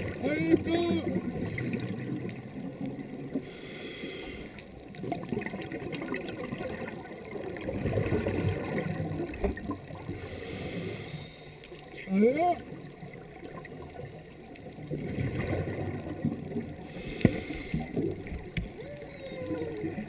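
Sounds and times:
muffled underwater rumble: 0.0 - 20.0
regulator bubbles: 4.8 - 10.2, 12.0 - 17.2.

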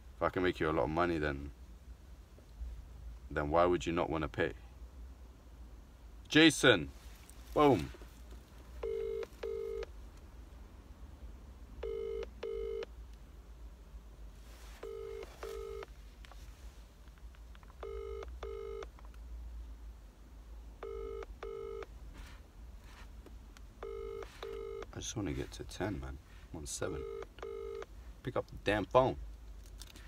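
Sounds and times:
telephone ringing tone: 8.8 - 9.9, 11.8 - 12.9, 14.8 - 15.9, 17.8 - 18.9, 20.8 - 21.9, 23.8 - 24.9, 26.9 - 27.9.

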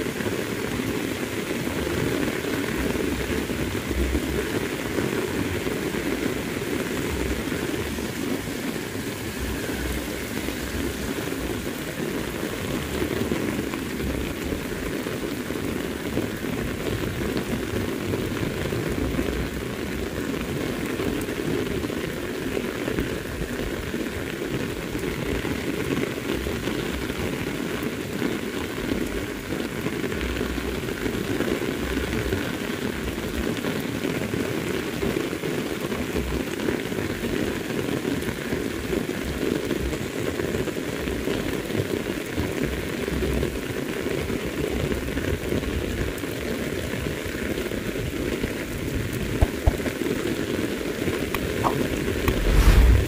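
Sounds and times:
heavy rain falling: 0.0 - 53.0.

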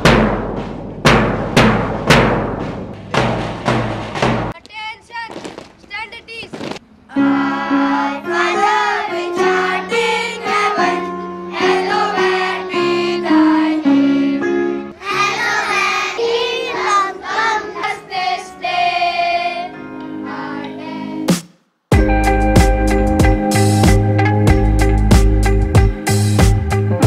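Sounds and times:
children singing in unison: 7.1 - 21.3.

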